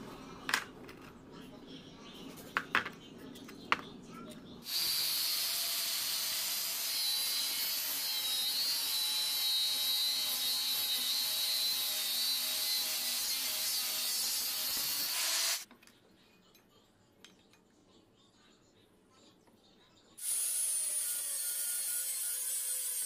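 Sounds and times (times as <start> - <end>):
angle grinder cutting steel: 4.6 - 15.6, 20.2 - 23.0.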